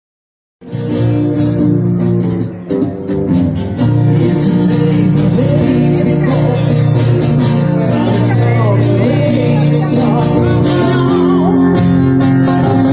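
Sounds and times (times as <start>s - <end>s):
live guitar music through speaker: 0.6s - 12.9s
person singing: 3.8s - 12.9s.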